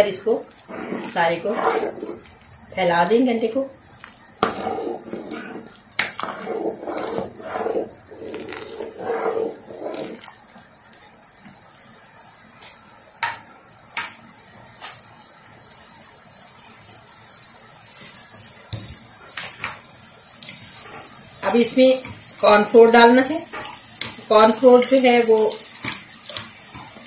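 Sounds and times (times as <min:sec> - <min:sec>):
soup simmering bubbling: 0:00.4 - 0:02.7, 0:03.8 - 0:21.4.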